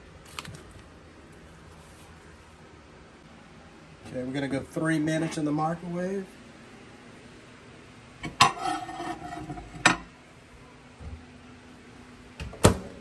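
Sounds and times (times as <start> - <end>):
microwave door shutting: 12.4 - 13.0.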